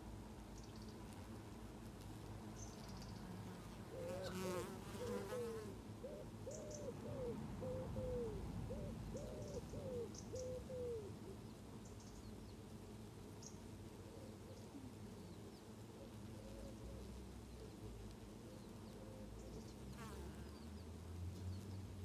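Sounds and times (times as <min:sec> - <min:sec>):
bee flying past: 0:01.0 - 0:05.8, 0:16.1 - 0:22.0
bird low cooing notes: 0:03.9 - 0:11.4, 0:14.0 - 0:15.3, 0:16.0 - 0:20.6
distant songbirds chirping: 0:06.0 - 0:12.6.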